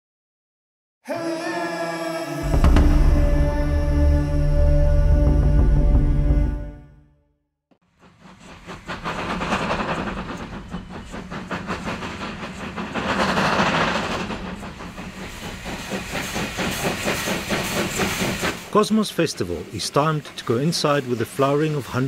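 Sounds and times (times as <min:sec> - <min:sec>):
steam locomotive chuffing: 0:02.4 - 0:06.7, 0:07.8 - 0:22.0
steam hissing: 0:07.8 - 0:22.0.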